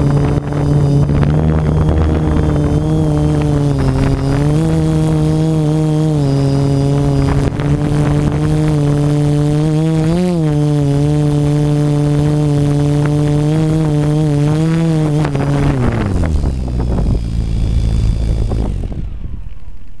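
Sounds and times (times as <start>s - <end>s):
drone motors humming: 0.0s - 20.0s
low rumble: 15.3s - 20.0s.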